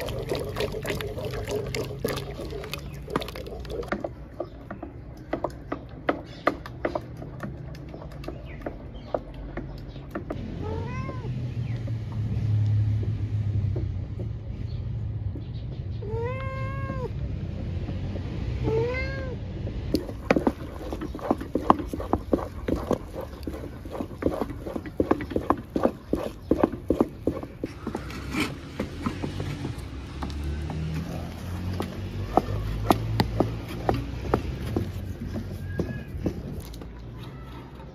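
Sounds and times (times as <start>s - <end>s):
wooden spoon scraping a metal pot: 0.0s - 4.5s, 20.0s - 28.9s
cat meowing: 10.6s - 11.3s, 16.0s - 17.2s, 18.6s - 19.4s.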